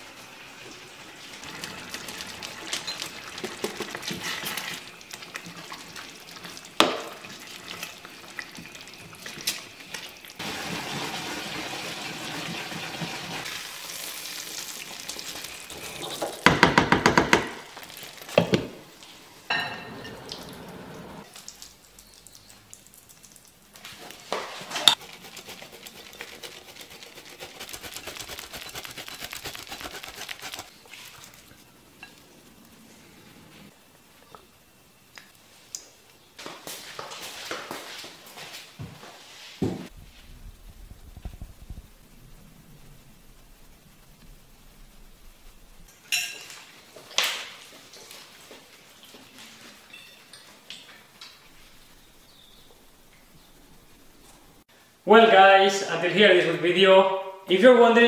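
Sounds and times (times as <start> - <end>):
rice sizzling in a frying pan: 0.0 - 16.5, 17.6 - 19.2
cheese on a hand grater: 25.0 - 30.7.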